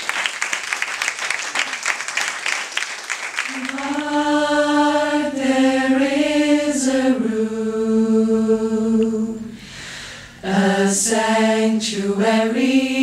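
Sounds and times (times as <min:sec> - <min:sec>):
choir singing held notes: 0:03.5 - 0:13.0.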